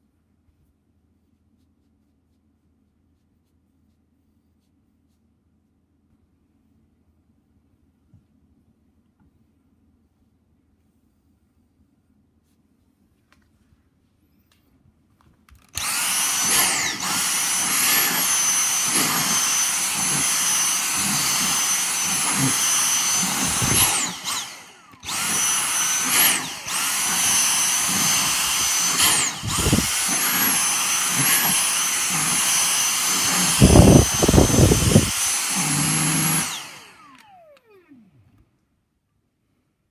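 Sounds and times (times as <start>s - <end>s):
handheld vacuum cleaner whining: 15.6s - 38.4s.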